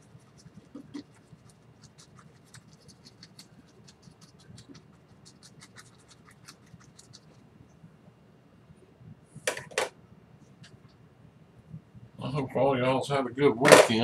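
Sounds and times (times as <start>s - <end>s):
brush scratching on canvas: 0.0s - 7.5s.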